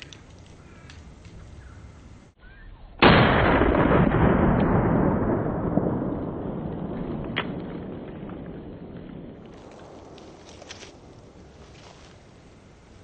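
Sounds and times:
revolver gunshot: 3.0 - 8.5.

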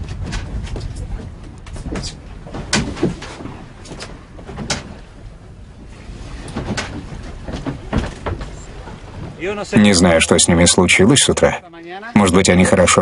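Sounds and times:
knocks and clicks of gear: 0.0 - 5.0
footsteps on boat deck: 0.0 - 9.6
low rumble of wind and water: 0.0 - 13.0.

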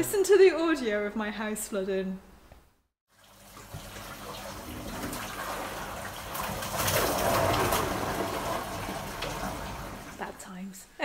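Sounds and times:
floodwater rushing: 3.4 - 10.4.

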